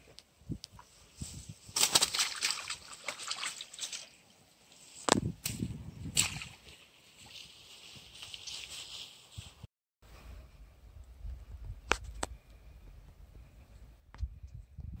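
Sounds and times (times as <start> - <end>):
water splashing and sloshing: 1.6 - 8.7.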